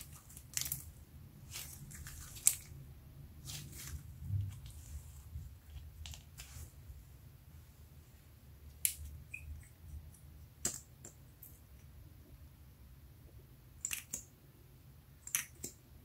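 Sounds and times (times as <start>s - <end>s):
hands squishing slime: 0.0s - 6.6s.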